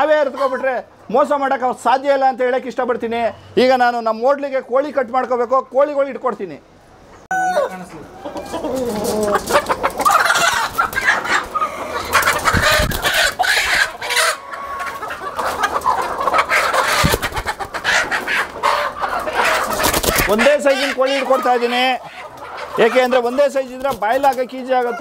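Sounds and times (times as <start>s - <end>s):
chickens squawking and clucking: 0.0s - 1.8s, 6.7s - 25.0s
wings flapping: 8.7s - 13.4s, 16.8s - 17.8s, 19.4s - 20.4s.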